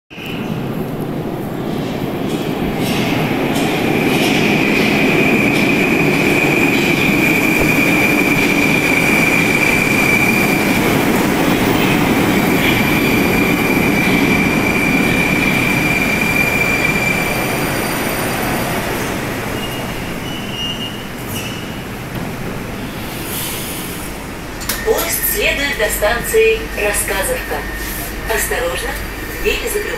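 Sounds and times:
train wheels rumbling: 0:00.1 - 0:29.9
high brake squeal: 0:19.5 - 0:21.9.

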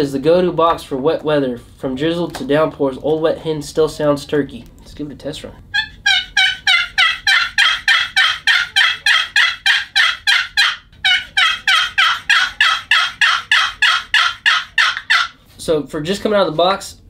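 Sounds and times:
turkey box call hen notes: 0:05.7 - 0:15.4.

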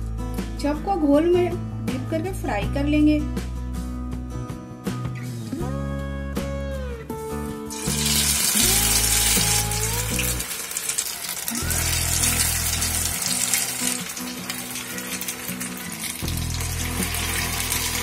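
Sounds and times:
background music with low notes: 0:00.0 - 0:18.0
food deep-frying in hot oil: 0:07.7 - 0:18.0.

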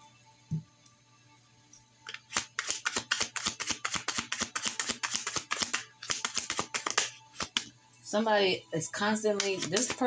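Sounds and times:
cards being shuffled: 0:02.1 - 0:07.7, 0:09.4 - 0:10.0.

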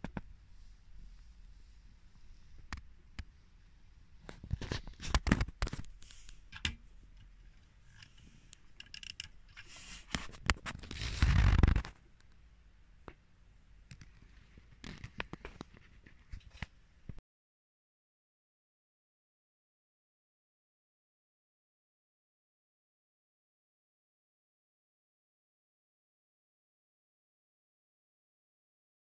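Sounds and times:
plastic rubbing scrape: 0:07.9 - 0:12.0.

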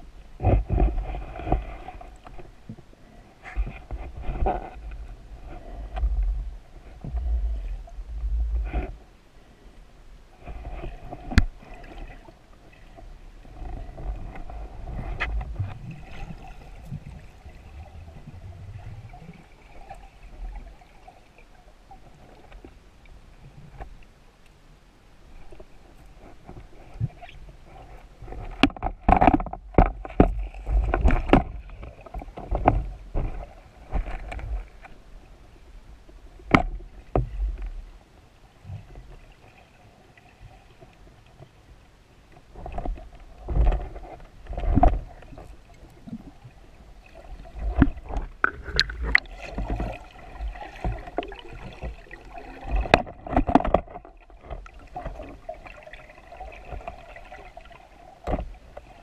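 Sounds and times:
faint steady hum: 0:00.0 - 0:59.0
water rushing underwater: 0:44.6 - 0:59.0.

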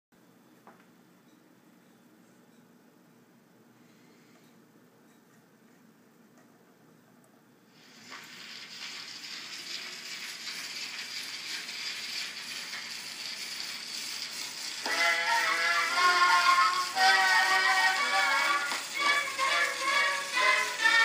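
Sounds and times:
record surface hiss: 0:00.2 - 0:21.0
phonograph music: 0:08.3 - 0:21.0.

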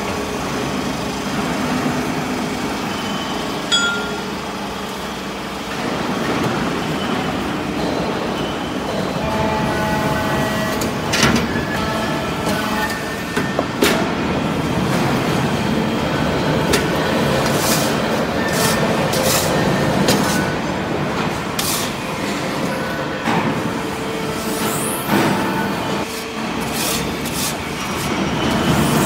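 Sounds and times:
sharp metallic knocks: 0:03.7 - 0:04.4.

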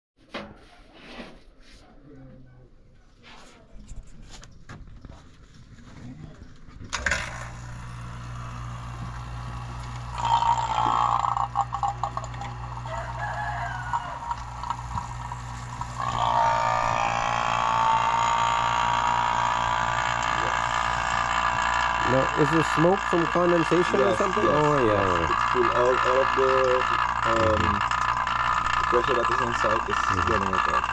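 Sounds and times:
vacuum pump motor hum: 0:06.9 - 0:30.9.

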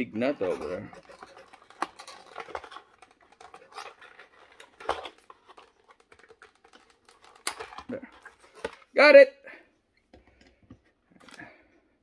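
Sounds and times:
cardboard packaging rustling: 0:00.1 - 0:09.0.

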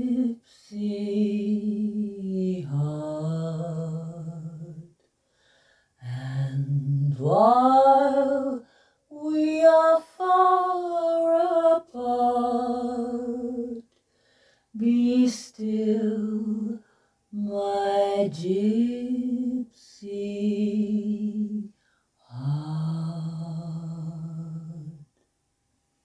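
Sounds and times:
woman singing a cappella: 0:00.0 - 0:05.1, 0:06.0 - 0:14.0, 0:14.7 - 0:25.1
singer breathing: 0:05.2 - 0:06.0, 0:14.0 - 0:14.8.

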